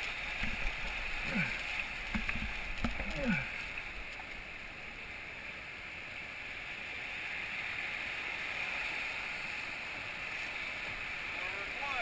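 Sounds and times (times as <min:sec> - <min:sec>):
whitewater rapid rushing: 0:00.0 - 0:12.0.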